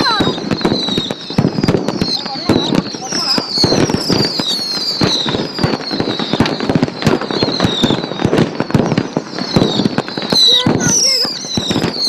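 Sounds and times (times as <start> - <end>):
falling firework whistles: 0.0 - 12.0
fireworks launches and bangs: 0.0 - 12.0.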